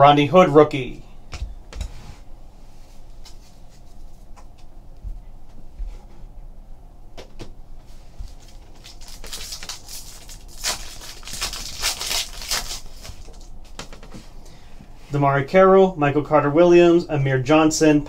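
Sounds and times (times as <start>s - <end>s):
plastic wrapper tearing and crinkling: 8.3s - 13.6s.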